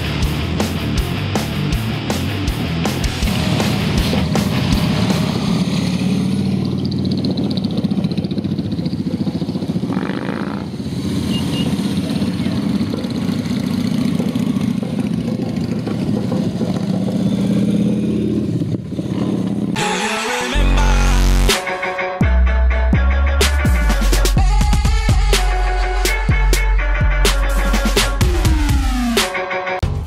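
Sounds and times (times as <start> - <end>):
motorcycles riding past: 3.2 - 19.8.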